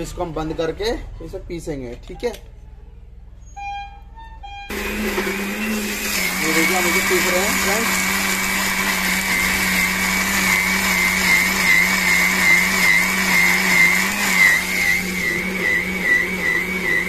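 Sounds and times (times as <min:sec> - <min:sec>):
mixer grinder motor running: 0:04.7 - 0:17.0.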